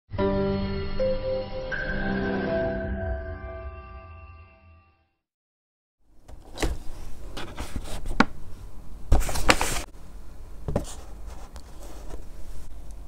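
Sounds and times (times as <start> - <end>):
paper bag rustling: 9.1 - 9.9.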